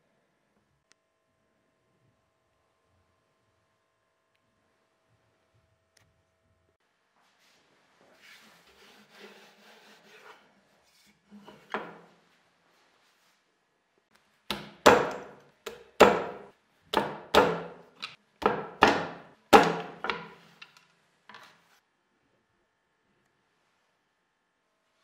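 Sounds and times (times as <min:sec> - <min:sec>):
sharp wooden knocks: 0:14.5 - 0:20.7.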